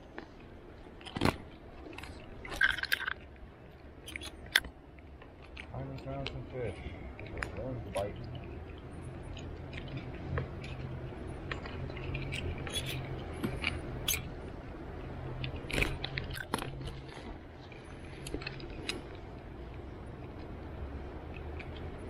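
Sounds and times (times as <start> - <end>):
small clicks and scrapes: 0.0 - 3.4, 4.0 - 14.3, 15.3 - 20.5
low steady rumble: 0.0 - 22.0
rustling handling noise: 15.3 - 19.4.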